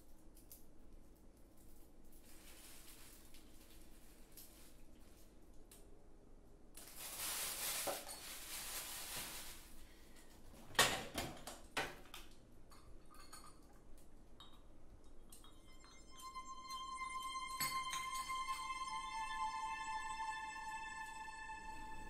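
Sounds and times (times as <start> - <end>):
rustling hiss: 6.8 - 10.2
light clinks and taps: 12.2 - 16.3
tuned music: 15.4 - 22.0.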